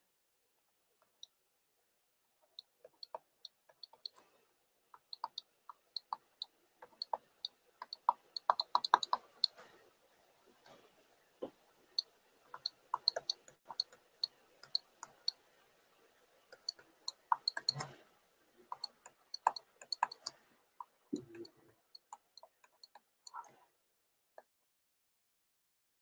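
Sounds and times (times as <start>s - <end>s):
stylus tapping on tablet: 2.8s - 4.2s, 5.0s - 9.7s, 12.6s - 14.0s, 16.5s - 18.0s, 18.7s - 23.6s.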